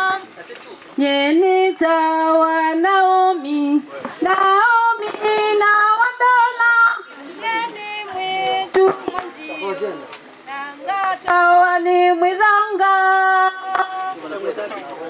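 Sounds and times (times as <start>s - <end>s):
women singing a cappella: 0.0s - 0.3s, 1.0s - 14.4s.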